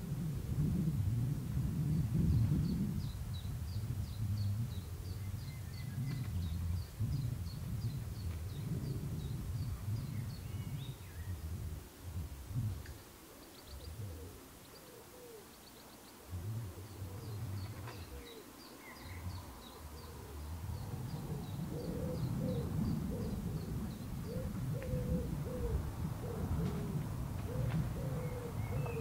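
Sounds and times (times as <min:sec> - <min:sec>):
pigeon cooing: 0:13.2 - 0:29.0.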